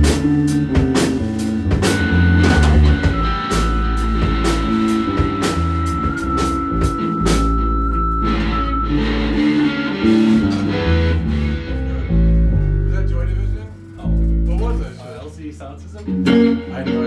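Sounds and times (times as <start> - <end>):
drum hits: 0.0 - 7.7
rock music with guitar and bass: 0.0 - 14.9, 16.0 - 17.0
high held note: 2.4 - 12.0.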